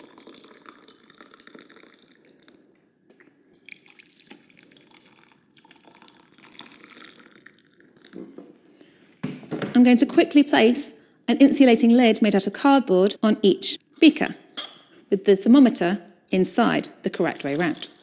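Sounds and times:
water pouring into glass: 0.0 - 2.8, 3.4 - 8.2.

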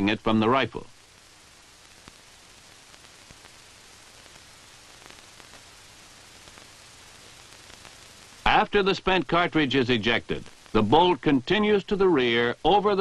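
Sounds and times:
film soundtrack hiss: 0.0 - 13.0
faint clicks and pops: 1.0 - 8.6, 10.2 - 11.4.

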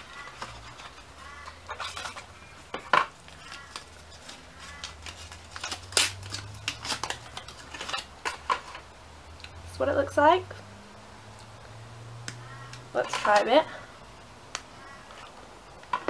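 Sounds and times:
wrapper crackling and rustling: 0.0 - 9.0.

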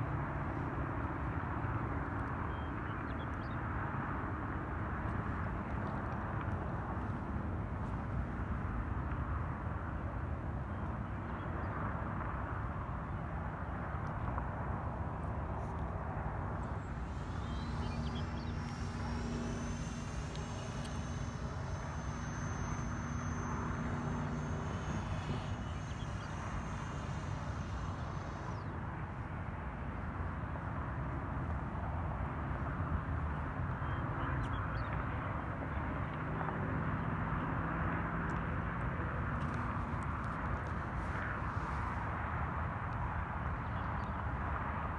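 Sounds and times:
electric ducted fan whine: 15.0 - 30.5.

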